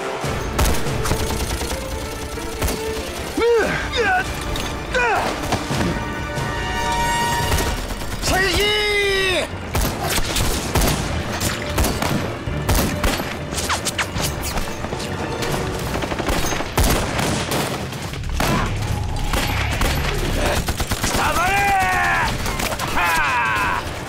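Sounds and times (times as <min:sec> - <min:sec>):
rapid gunfire: 0:00.6 - 0:03.5, 0:07.5 - 0:08.8, 0:09.7 - 0:18.7, 0:19.3 - 0:22.8.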